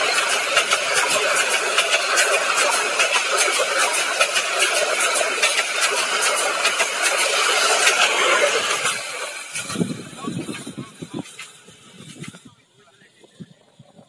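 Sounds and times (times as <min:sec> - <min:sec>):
train wheels rumbling on rails: 0:00.0 - 0:14.0
wheels clicking over rail joints: 0:00.0 - 0:14.0.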